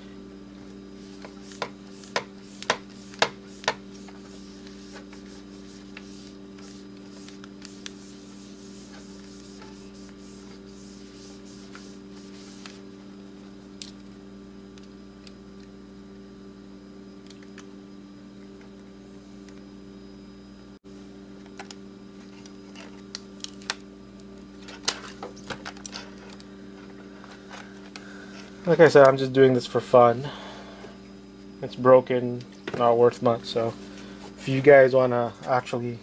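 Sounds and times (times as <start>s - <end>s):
steady low hum: 0.0s - 36.0s
cloth rubbing on glass screen: 1.0s - 12.9s.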